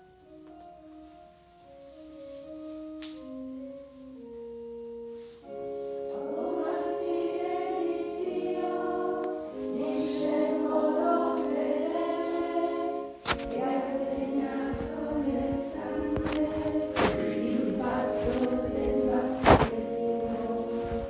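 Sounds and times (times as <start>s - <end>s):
organ chords: 0.0s - 21.0s
women singing a hymn: 6.1s - 21.0s.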